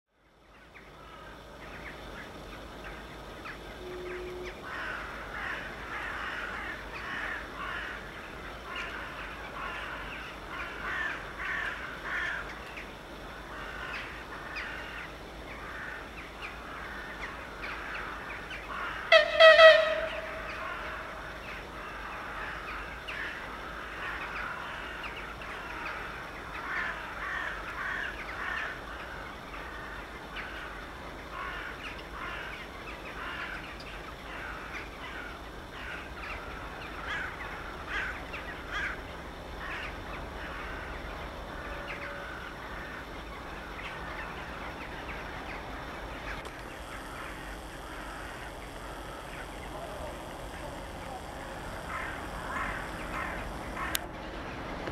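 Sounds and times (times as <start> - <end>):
locomotive horn signal: 3.8 - 4.6, 19.1 - 20.8
crows cawing: 4.0 - 39.0, 39.6 - 44.5, 46.2 - 54.1.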